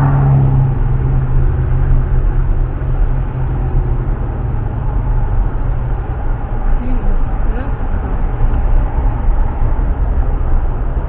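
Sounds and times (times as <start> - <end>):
road noise: 0.0 - 11.0
vehicle engine running: 0.0 - 11.0.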